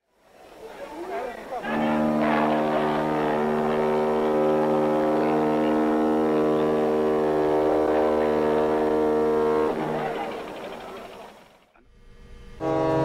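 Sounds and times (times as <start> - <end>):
ship's horn long low blast: 1.6 - 11.4, 12.6 - 13.0.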